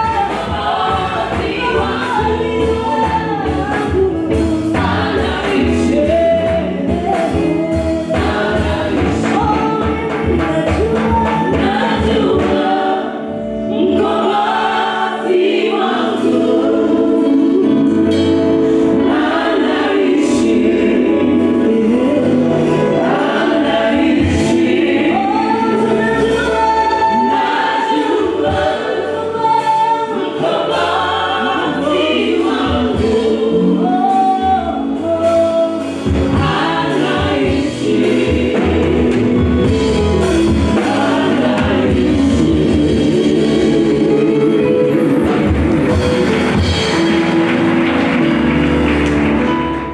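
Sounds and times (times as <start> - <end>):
band accompaniment: 0.0 - 49.9
choir singing: 0.0 - 49.9
electric guitar: 32.6 - 49.9.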